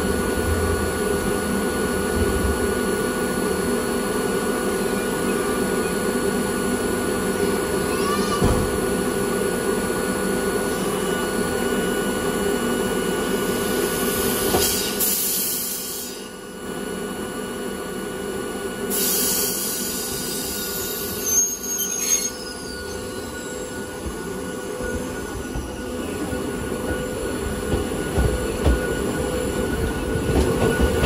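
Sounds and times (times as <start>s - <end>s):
electric train running: 0.0s - 31.0s
wheels squealing: 21.0s - 25.9s.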